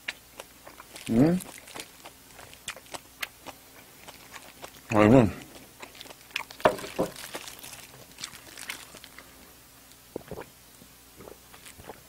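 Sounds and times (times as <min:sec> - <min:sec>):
mouth clicks and chewing smacks: 0:00.0 - 0:09.3, 0:10.1 - 0:10.5
sipping and swallowing: 0:00.0 - 0:09.3, 0:10.1 - 0:10.6, 0:11.2 - 0:12.0.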